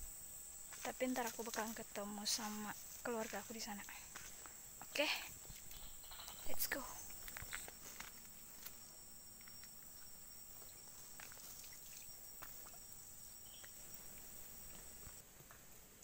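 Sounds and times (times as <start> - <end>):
insects chirring: 0.0 - 15.2
footsteps on wet trail: 0.7 - 15.6
thin high tone: 5.7 - 15.2.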